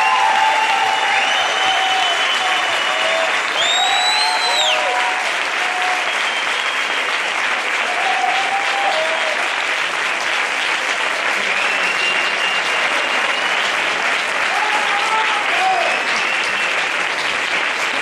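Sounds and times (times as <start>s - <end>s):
high whistle: 0.0s - 5.0s, 6.1s - 7.1s, 11.5s - 13.7s
audience applauding and cheering: 0.0s - 18.0s.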